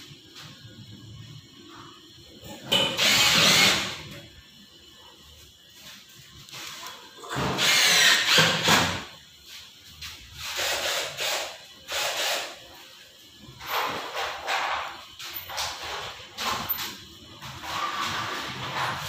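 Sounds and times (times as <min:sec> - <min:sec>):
power drill driving screws: 0:03.0 - 0:04.0, 0:07.3 - 0:09.0, 0:10.5 - 0:12.6.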